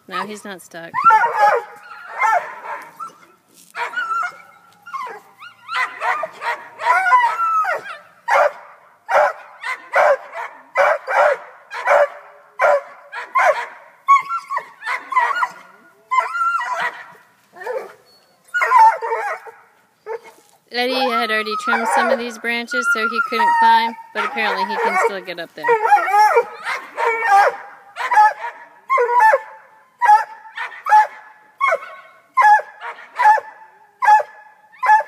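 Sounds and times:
dog yelping and whining: 1.0s - 8.5s, 9.1s - 33.4s, 34.0s - 35.0s
dog barking: 1.1s - 2.9s, 5.7s - 7.3s, 8.3s - 13.9s.

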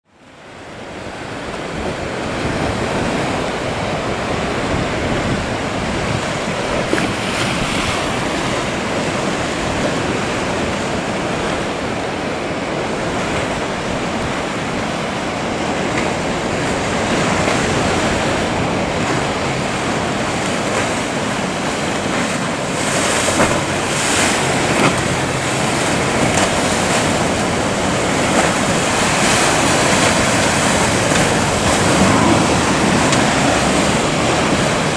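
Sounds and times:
wind on microphone: 0.5s - 34.9s
surf breaking: 12.6s - 34.9s.

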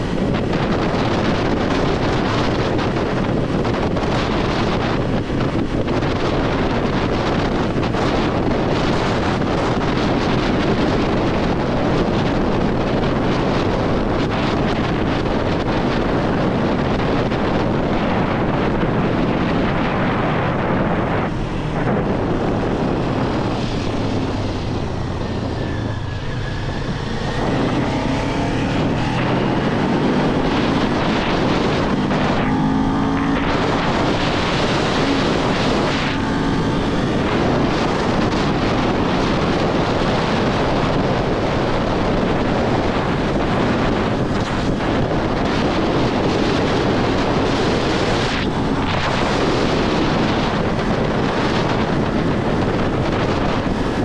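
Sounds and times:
motorcycle engine at speed: 0.0s - 54.0s
wind noise on microphone: 0.0s - 54.0s.

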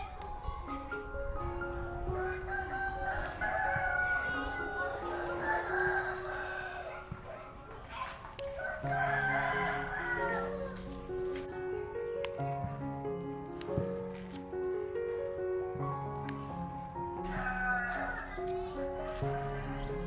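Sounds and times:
background music: 0.0s - 20.0s
rooster crowing: 2.0s - 11.0s, 17.2s - 20.0s.

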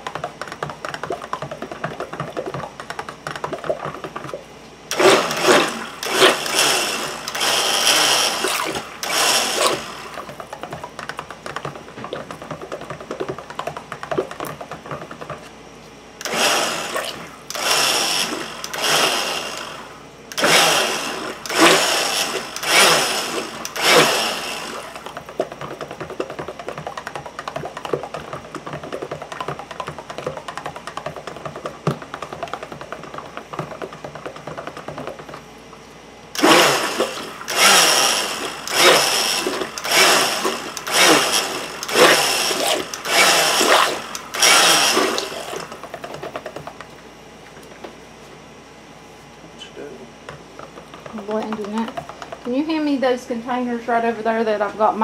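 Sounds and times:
stick blender motor bursts: 4.9s - 10.3s, 16.2s - 25.1s, 36.4s - 46.2s
blender swishing through batter: 4.9s - 10.5s, 16.2s - 25.2s, 36.4s - 46.5s.

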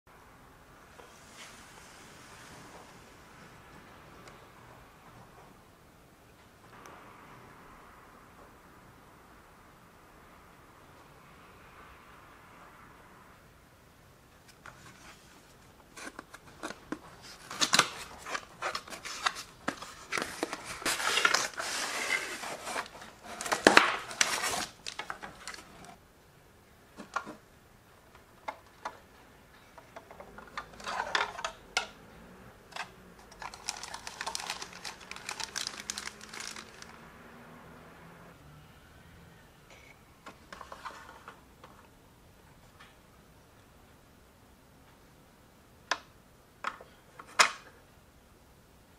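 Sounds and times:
cardboard packaging rustling: 14.6s - 26.0s, 33.2s - 37.0s
plastic bags crinkling: 17.3s - 25.9s, 33.2s - 37.0s.

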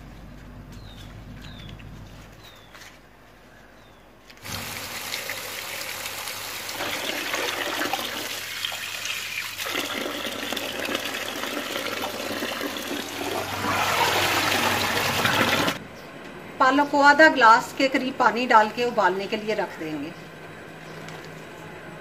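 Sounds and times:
tap water running onto leaves: 4.4s - 15.8s.

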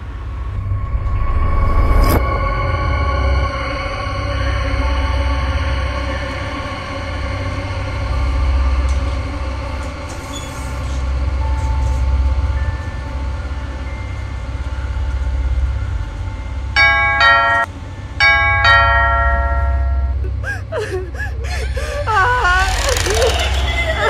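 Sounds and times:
low droning horror music: 0.0s - 24.0s
electronic doorbell chime: 16.8s - 20.2s.

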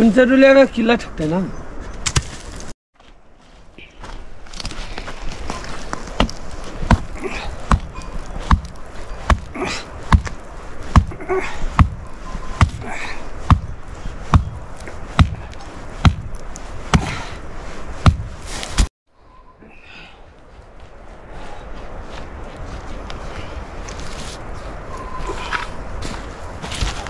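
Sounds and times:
heavy footsteps walking: 1.9s - 12.8s, 13.4s - 18.9s, 20.4s - 27.0s.

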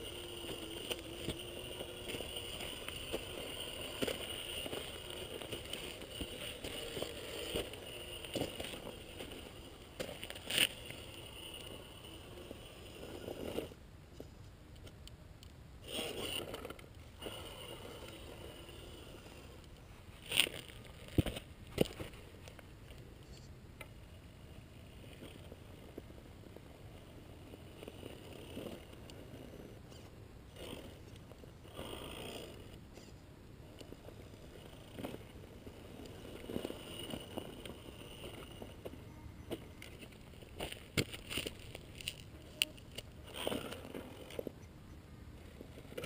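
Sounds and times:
toy car motor whining: 0.0s - 13.8s, 15.8s - 22.1s, 27.0s - 44.7s
tyres scraping on stone: 0.0s - 13.8s, 15.8s - 22.6s, 33.8s - 44.6s.

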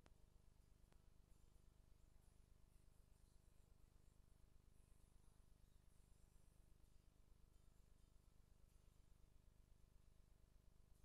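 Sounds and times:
faint low hum and hiss: 0.0s - 11.0s.

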